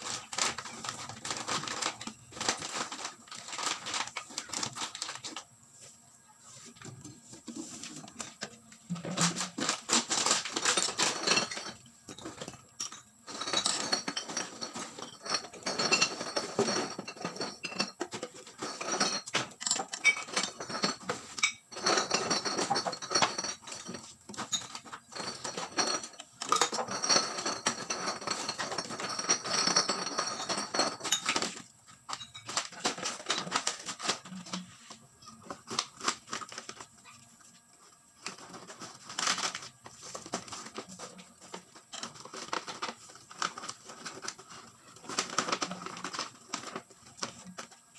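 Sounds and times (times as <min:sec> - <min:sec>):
plastic bottles crackling and clattering: 0:00.0 - 0:05.5, 0:06.8 - 0:47.9.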